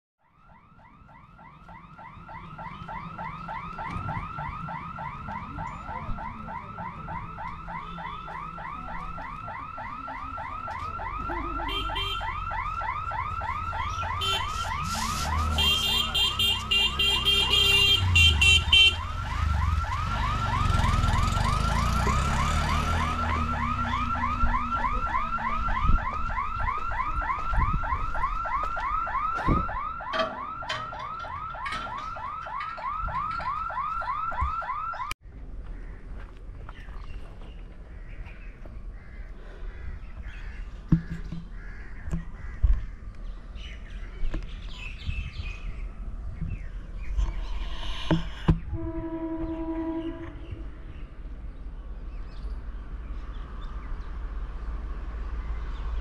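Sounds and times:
electronic alarm tone: 0.5s - 17.4s
shrill horn burst: 14.2s - 19.0s, 48.7s - 50.6s
engines rumbling past: 16.6s - 26.0s.

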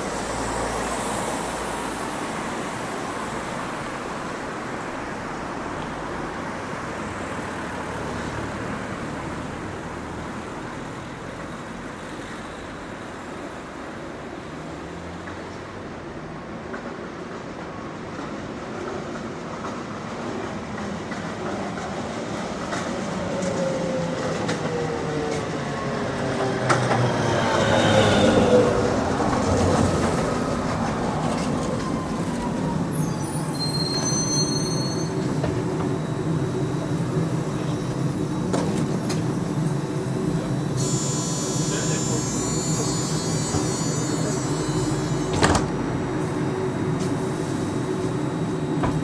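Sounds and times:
streetcar rumbling on rails: 0.0s - 49.0s
wheels squealing: 31.3s - 35.4s.

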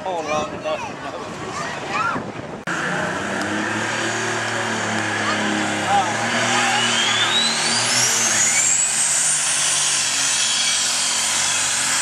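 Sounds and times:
tractor diesel engine roaring: 2.6s - 12.0s
turbo whine: 2.7s - 12.0s.

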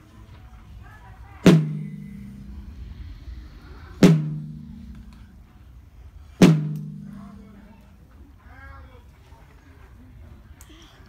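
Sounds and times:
large drum booming: 1.4s - 7.8s.

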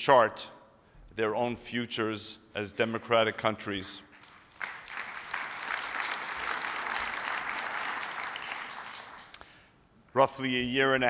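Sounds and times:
audience applauding: 4.1s - 9.4s.

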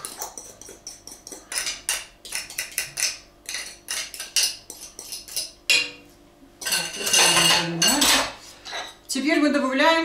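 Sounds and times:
fork scraping a glass bowl: 2.8s - 5.5s.

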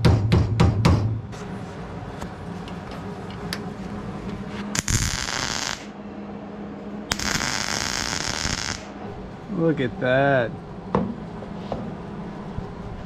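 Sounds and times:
welding arc crackling: 4.8s - 5.9s, 7.1s - 8.9s.

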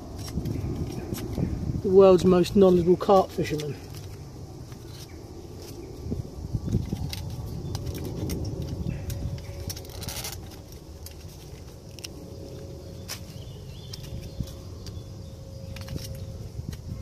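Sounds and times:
wooden sticks knocking and scraping: 0.0s - 1.5s, 6.7s - 15.0s.

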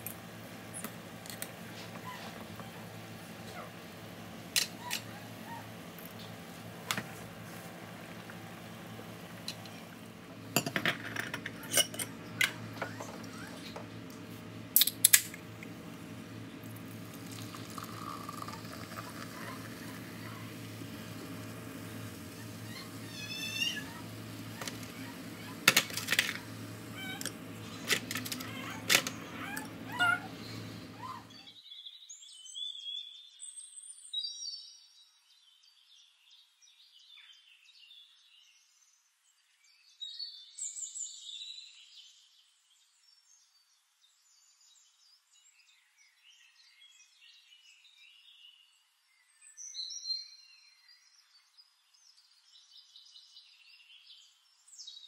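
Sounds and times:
birdsong chirps: 0.0s - 10.6s, 14.8s - 55.0s
low room hum: 0.0s - 31.6s.

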